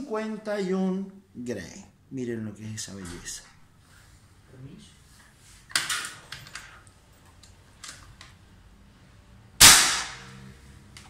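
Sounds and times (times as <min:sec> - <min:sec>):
air rifle shot: 0:09.6 - 0:10.4.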